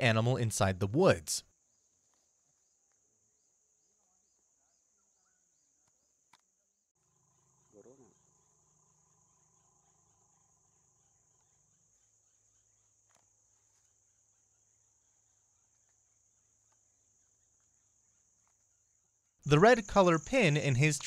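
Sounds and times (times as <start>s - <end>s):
forest insects droning: 0.1s - 21.0s.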